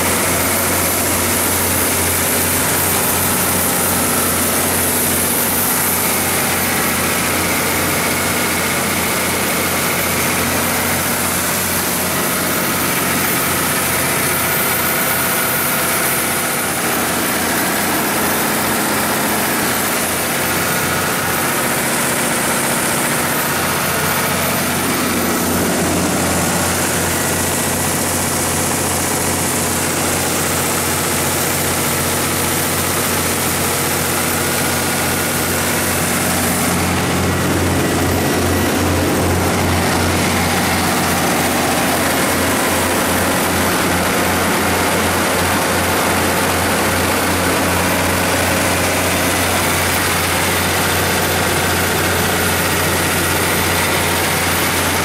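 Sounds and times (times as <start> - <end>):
diesel generator engine running: 0.0 - 55.0.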